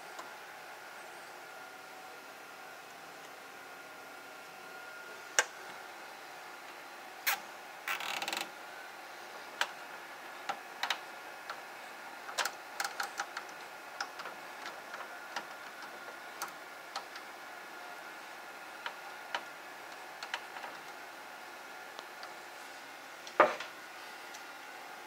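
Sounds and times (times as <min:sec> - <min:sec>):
cables clicking and tapping: 0:10.4 - 0:11.6, 0:12.2 - 0:17.3, 0:18.8 - 0:21.0.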